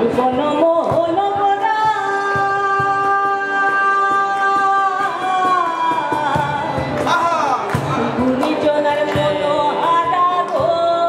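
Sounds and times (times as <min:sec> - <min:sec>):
live band playing: 0:00.0 - 0:11.0
drum hits: 0:00.1 - 0:11.0.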